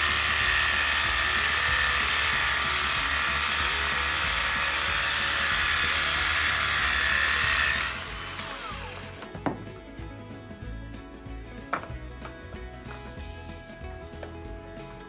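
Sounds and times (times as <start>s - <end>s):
sprayer pump whirring: 0.0s - 9.6s
background music: 0.0s - 15.0s.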